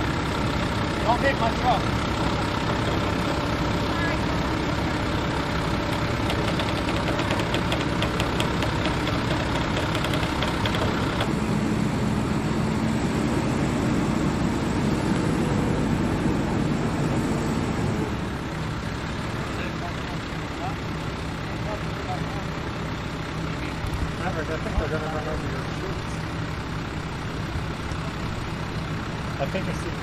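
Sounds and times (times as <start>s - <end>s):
diesel truck engine running: 0.0s - 30.0s
quick clatter of ticks: 5.8s - 11.3s.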